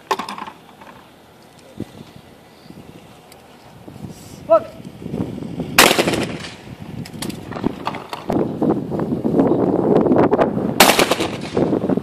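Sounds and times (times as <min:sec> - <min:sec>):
faint outdoor ambience: 0:00.0 - 0:12.0
shotgun shot with echo: 0:05.8 - 0:06.6, 0:10.8 - 0:11.6.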